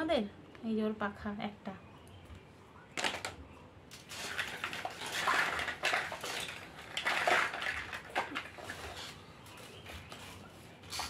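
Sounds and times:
plastic toys clattering: 3.0 - 10.3.

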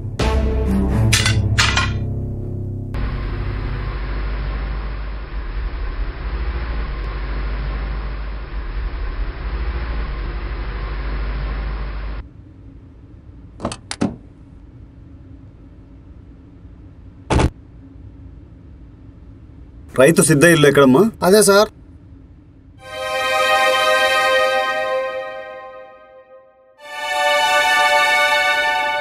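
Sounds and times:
car engine and road noise: 2.1 - 12.3.

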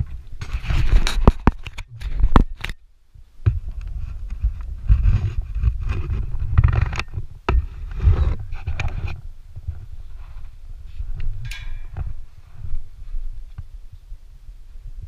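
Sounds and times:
low uneven rumble: 3.2 - 15.0.

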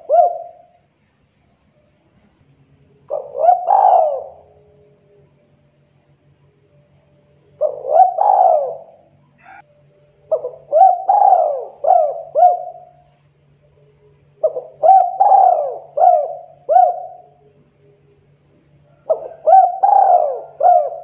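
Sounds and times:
dove cooing: 0.0 - 0.7, 3.1 - 4.9, 7.6 - 9.6, 10.3 - 13.0, 14.4 - 17.4, 18.9 - 21.0.

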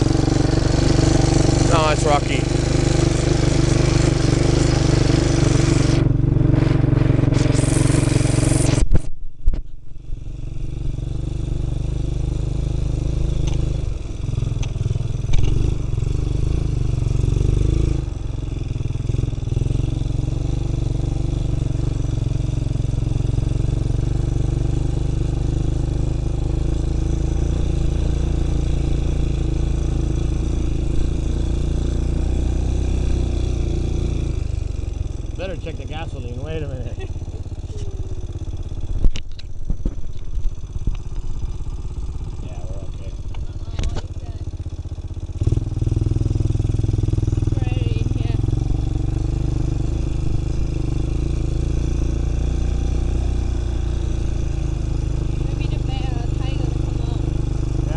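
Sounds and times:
quad engine running: 0.0 - 57.9.

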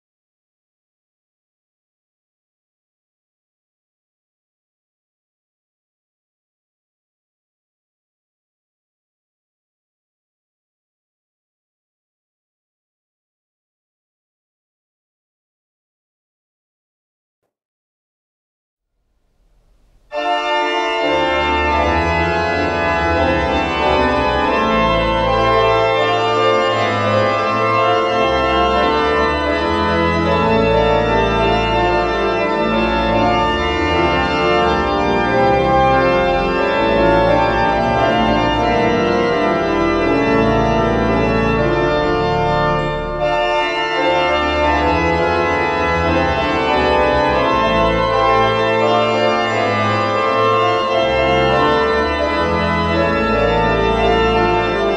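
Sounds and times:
pipe organ chords: 19.3 - 54.9.

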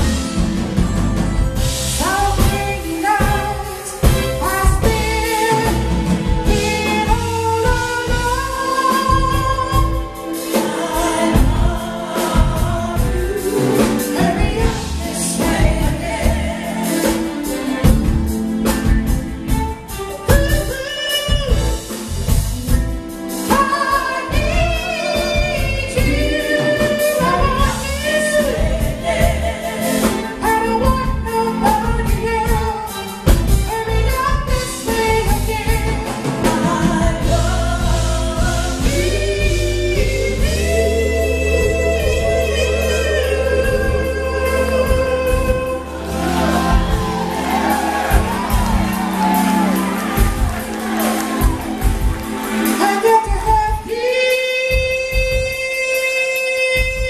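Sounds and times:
drums: 0.0 - 57.0
keyboard: 0.0 - 57.0
women singing backing vocals: 2.0 - 18.4, 23.5 - 33.1, 33.8 - 52.1
man singing lead vocals: 23.5 - 50.3, 52.6 - 57.0.

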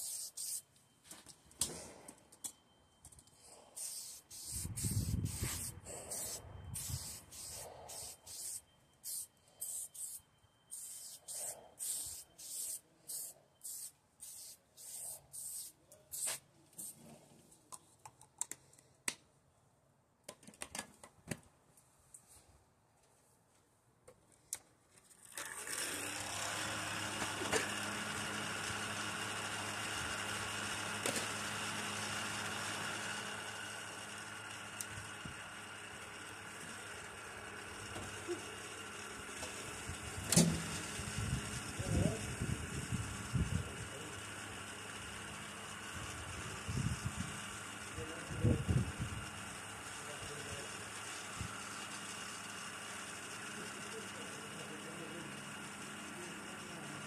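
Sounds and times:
machine hum with hiss: 3.3 - 17.0, 25.8 - 57.0.

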